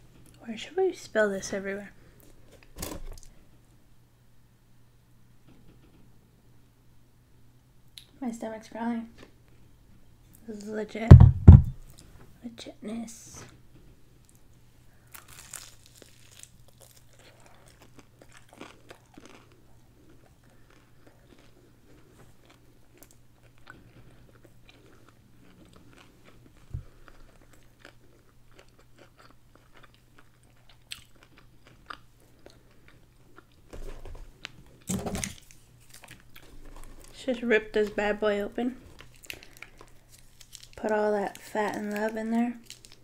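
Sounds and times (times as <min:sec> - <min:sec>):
chewing crispy fried chicken: 0:14.2 - 0:33.7, 0:38.8 - 0:43.0
condiment packet crinkling: 0:15.1 - 0:21.6, 0:38.8 - 0:43.0.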